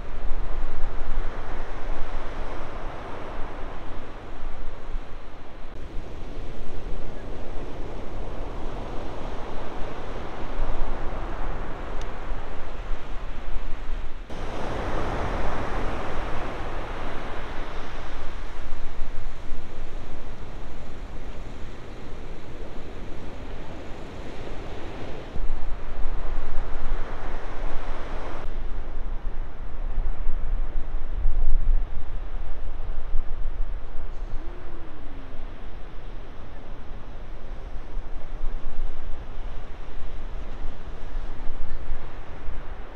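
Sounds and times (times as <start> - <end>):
wind on microphone: 0.0 - 42.9
ocean surf breaking: 14.3 - 18.8.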